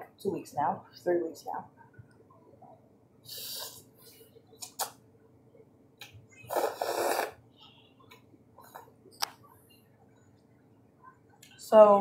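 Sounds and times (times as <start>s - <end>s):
person slurping noodles: 6.5s - 7.4s.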